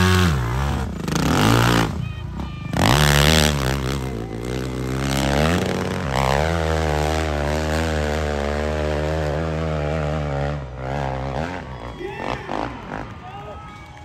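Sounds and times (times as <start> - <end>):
dirt bike engine at full throttle: 0.0 - 14.0.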